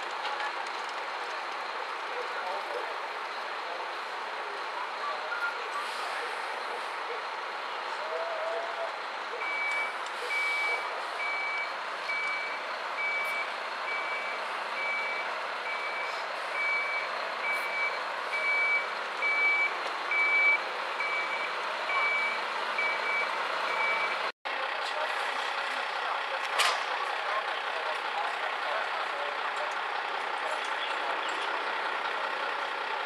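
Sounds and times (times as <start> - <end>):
street noise: 0.0 - 33.0
vehicle engine: 0.0 - 33.0
truck reversing alarm beeping: 3.1 - 6.8, 9.3 - 24.3.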